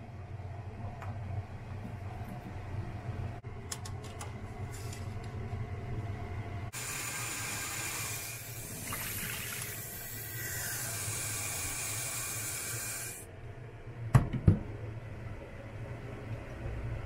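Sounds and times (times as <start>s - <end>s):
tap water running into a pan: 8.7s - 10.3s.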